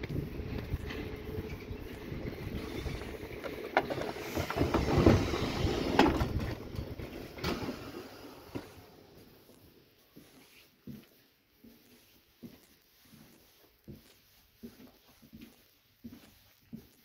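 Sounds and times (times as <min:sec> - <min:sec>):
train doors sliding open: 0:00.0 - 0:09.0
train carriage interior: 0:00.0 - 0:11.8.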